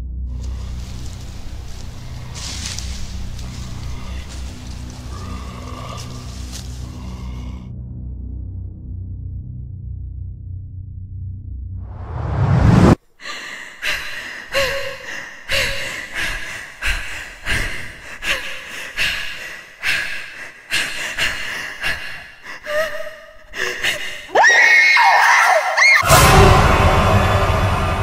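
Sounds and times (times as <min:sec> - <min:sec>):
person panting: 0:00.4 - 0:07.6, 0:13.2 - 0:24.4
rising swell: 0:11.8 - 0:13.0.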